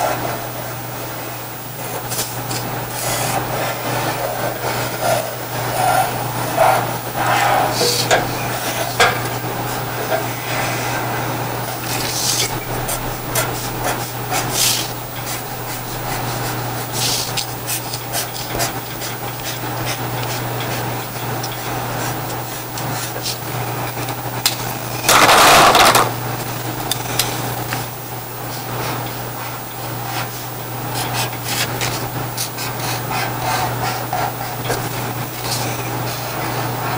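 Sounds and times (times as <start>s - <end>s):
steady low hum: 0.0s - 36.9s
markers scratching on paper: 11.8s - 23.6s, 30.1s - 36.9s.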